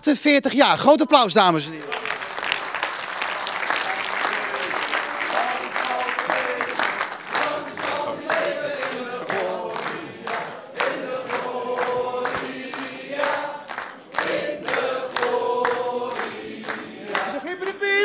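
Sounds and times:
people clapping in time: 1.2 - 18.0
people singing together: 3.8 - 18.0.

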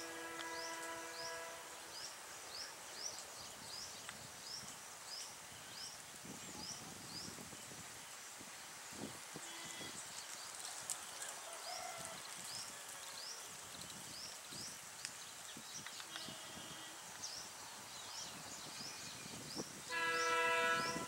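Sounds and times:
distant locomotive horn: 0.0 - 1.8, 19.9 - 21.0
faint outdoor hiss: 0.0 - 21.0.

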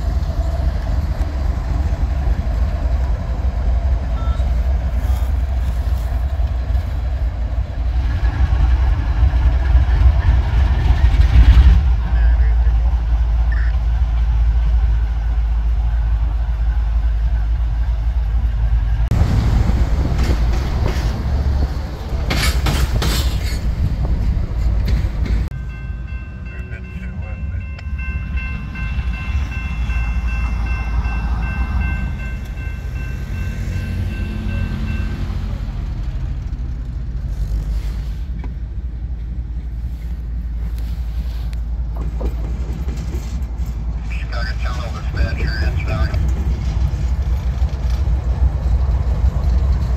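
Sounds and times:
locomotive rumbling past: 0.0 - 49.9
wind buffeting microphone: 18.3 - 25.5.

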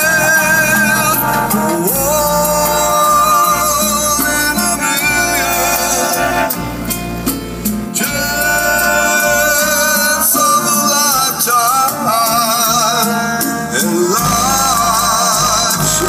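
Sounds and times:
person singing: 0.0 - 6.9, 7.8 - 16.0
heavy bass from car stereo: 0.0 - 9.9, 13.8 - 16.0
guitar: 0.0 - 16.0.

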